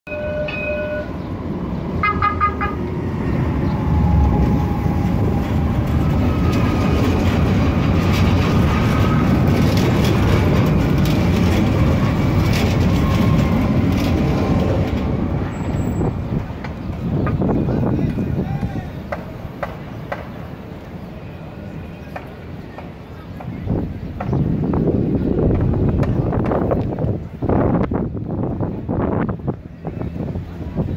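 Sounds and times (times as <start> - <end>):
tram warning bell ringing: 0.1 - 4.2
tram wheels rumbling on rails: 0.1 - 30.9.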